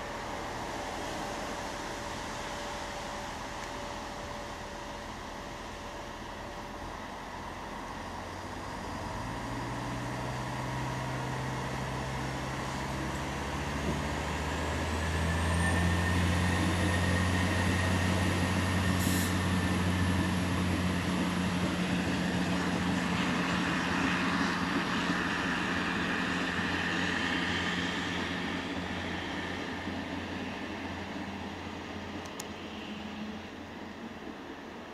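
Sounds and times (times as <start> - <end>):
diesel train engine: 0.0 - 34.9.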